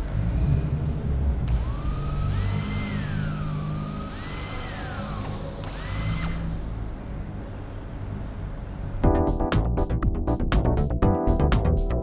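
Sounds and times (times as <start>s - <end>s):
power drill motor whine: 1.4s - 6.6s.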